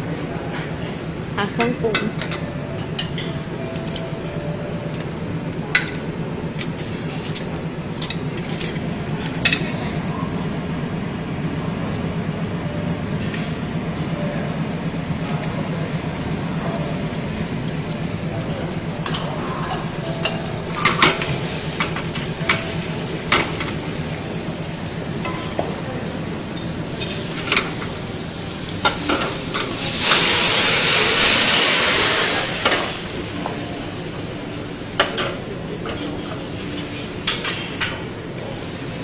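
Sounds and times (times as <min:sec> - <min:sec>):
steady low hum: 0:00.0 - 0:39.0
seafood frying in a pan: 0:20.8 - 0:33.4.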